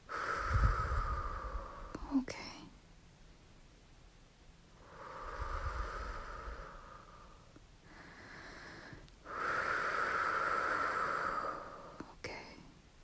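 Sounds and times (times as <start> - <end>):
breathy whooshing: 0.0 - 2.0, 4.8 - 12.0.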